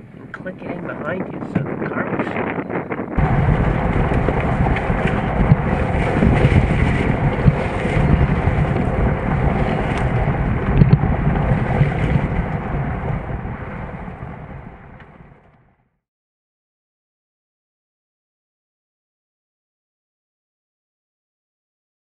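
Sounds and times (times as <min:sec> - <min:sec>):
wind buffeting microphone: 0:00.0 - 0:15.8
car engine and tyre rumble: 0:03.0 - 0:15.8.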